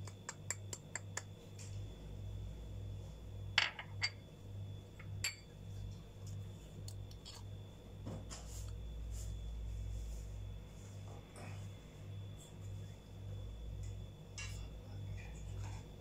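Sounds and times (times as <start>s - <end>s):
steady low hum: 0.0s - 16.0s
bowls clinking on countertop: 3.6s - 4.2s, 5.0s - 5.5s.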